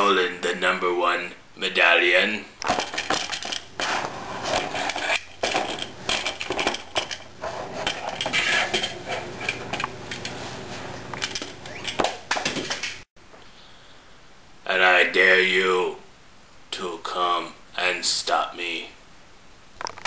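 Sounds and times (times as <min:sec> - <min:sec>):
plastic toy banging on tray: 0:02.6 - 0:03.7.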